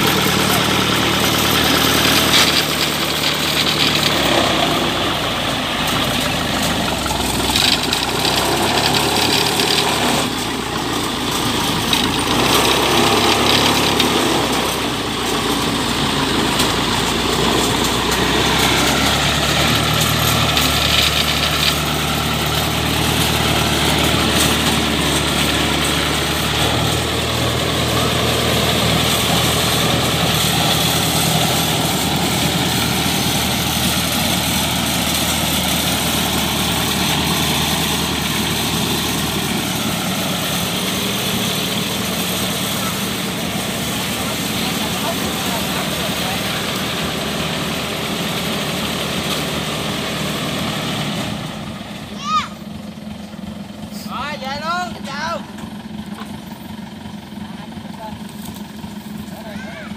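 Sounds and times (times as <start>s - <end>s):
harvester diesel engine running: 0.0s - 59.9s.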